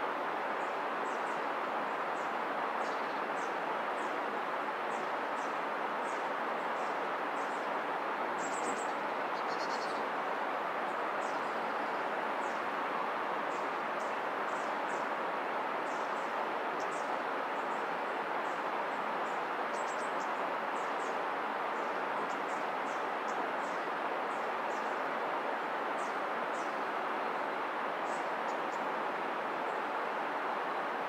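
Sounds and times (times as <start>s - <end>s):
river water rushing: 0.0s - 31.0s.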